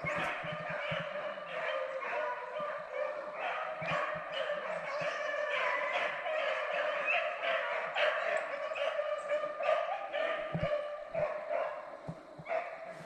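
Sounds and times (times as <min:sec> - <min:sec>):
dogs baying: 0:00.0 - 0:13.0.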